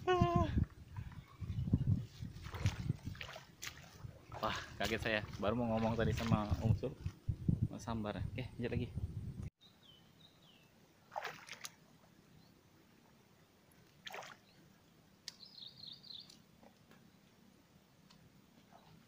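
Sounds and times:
splash-like noises: 2.4 - 6.6, 11.1 - 11.8, 14.0 - 14.4
birds calling: 15.3 - 16.4.

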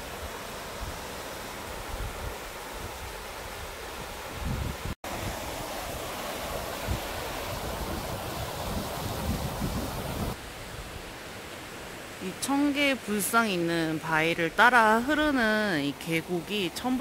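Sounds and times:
stream and waterfall rushing: 0.0 - 17.0
wind rumbling on microphone: 0.3 - 11.0.

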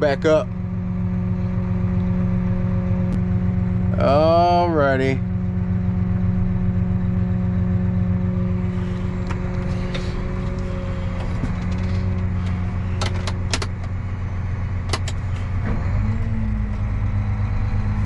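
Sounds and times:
tractor diesel engine running: 0.0 - 18.0
cab control clicks: 9.2 - 14.0, 14.9 - 15.3.

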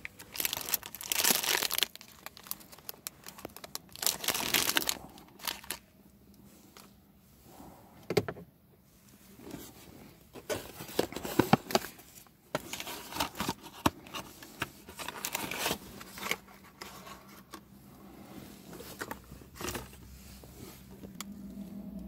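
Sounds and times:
food packaging rustling: 0.0 - 5.9, 9.4 - 17.7.

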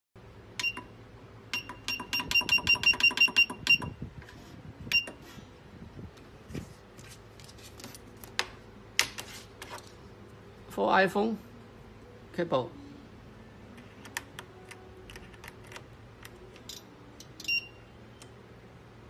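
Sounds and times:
short electronic beeps: 0.6 - 0.9, 1.5 - 4.0, 16.7 - 18.0.

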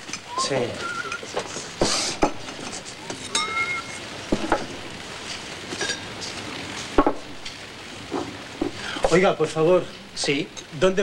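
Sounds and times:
glass bottles clinking on table: 3.3 - 4.0.

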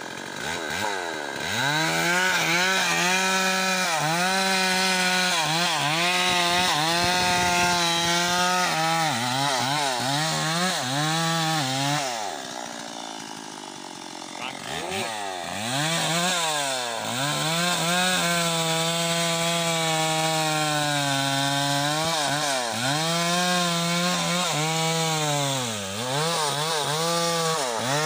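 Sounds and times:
chainsaw revving and cutting wood: 0.0 - 28.0.

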